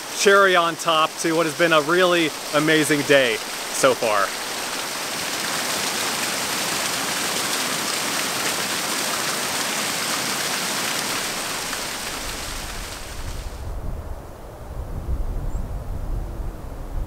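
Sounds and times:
waterfall splashing into pool: 0.0 - 13.6.

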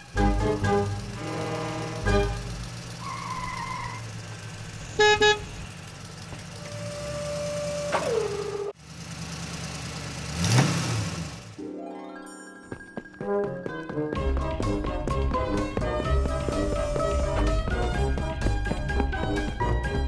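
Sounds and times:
car engine running: 0.0 - 11.6, 14.2 - 20.0
car horn honks: 4.9 - 5.6.

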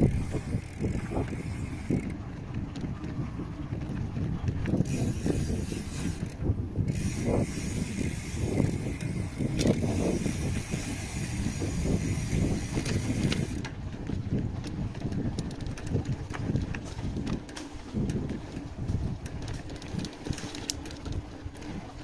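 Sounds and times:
wind rumbling on microphone: 0.0 - 22.0
mechanical clicking and rattling: 4.8 - 13.7.

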